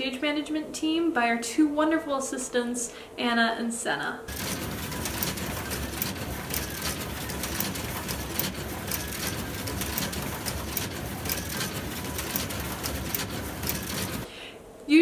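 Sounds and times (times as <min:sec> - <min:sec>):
printer clicks feeding sheets: 0:04.3 - 0:14.3
printer mechanical whir: 0:04.3 - 0:14.3.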